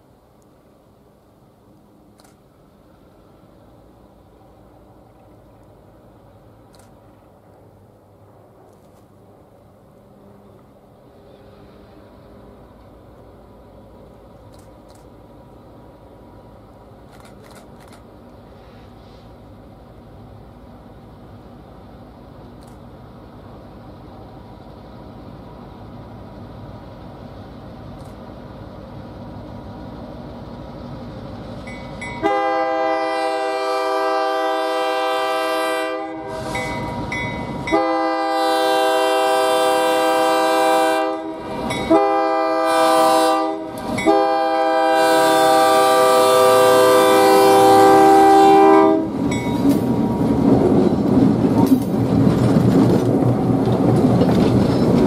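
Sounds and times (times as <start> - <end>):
diesel locomotive engine: 0.0 - 55.0
train air horn blasts: 32.2 - 36.7, 37.6 - 49.2
train wheels clacking on rail joints: 49.2 - 55.0.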